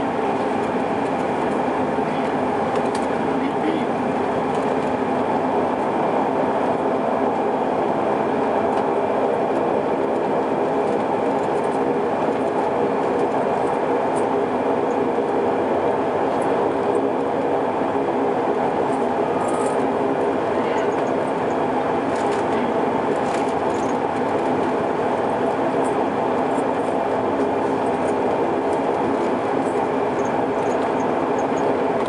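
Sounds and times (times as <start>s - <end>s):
turboprop engines droning: 0.0s - 32.0s.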